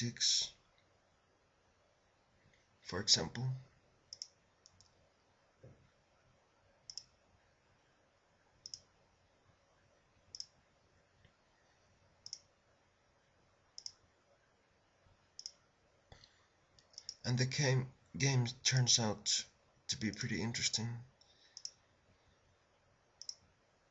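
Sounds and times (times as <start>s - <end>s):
computer mouse clicks: 4.1s - 5.0s, 6.9s - 7.2s, 8.6s - 8.9s, 10.3s - 10.6s, 12.2s - 12.5s, 13.8s - 14.0s, 15.4s - 17.2s, 21.2s - 21.8s, 23.2s - 23.5s.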